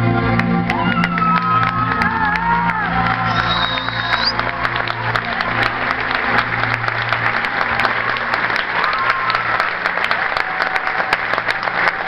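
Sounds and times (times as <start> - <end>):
dance music: 0.0 - 6.3
audience applauding: 0.2 - 12.0.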